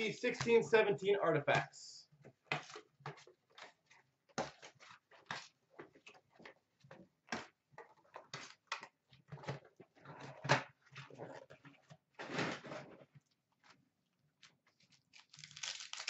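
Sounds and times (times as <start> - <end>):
card boxes and plastic packs rustling: 14.8 - 16.0.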